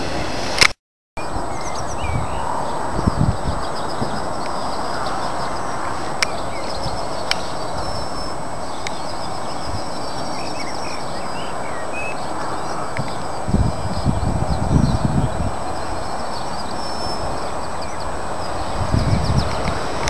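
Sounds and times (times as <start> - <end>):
steady outdoor hiss: 0.0 - 20.0
small birds twittering: 1.2 - 20.0
sharp clicks: 7.2 - 7.5.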